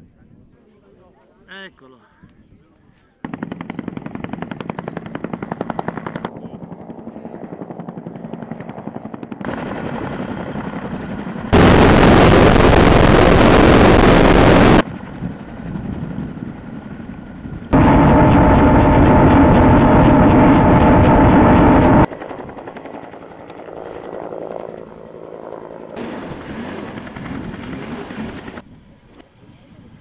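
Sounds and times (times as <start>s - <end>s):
helicopter rotor blades beating: 3.3s - 28.6s
loud rushing noise: 11.6s - 14.8s, 17.8s - 22.1s.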